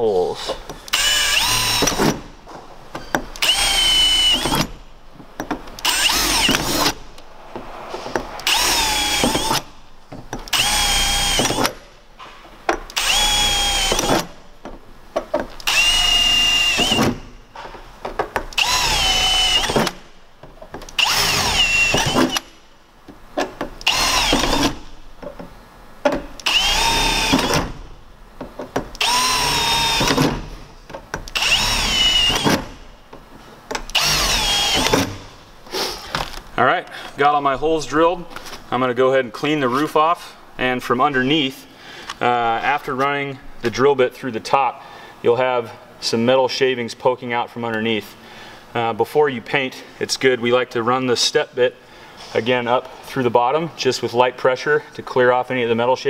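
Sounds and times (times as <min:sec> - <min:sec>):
cordless drill drilling through metal: 0:00.9 - 0:02.2, 0:03.3 - 0:04.8, 0:05.8 - 0:07.0, 0:08.4 - 0:09.7, 0:10.5 - 0:11.8, 0:13.0 - 0:14.3, 0:15.6 - 0:17.2, 0:18.5 - 0:20.0, 0:21.0 - 0:22.6, 0:23.8 - 0:24.8, 0:26.4 - 0:27.8, 0:29.0 - 0:30.4, 0:31.3 - 0:32.8, 0:33.9 - 0:35.2.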